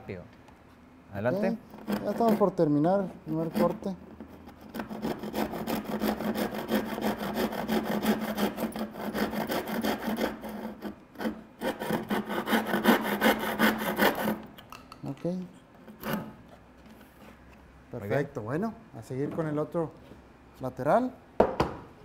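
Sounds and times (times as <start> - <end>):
handsaw cutting wood: 1.8 - 14.5.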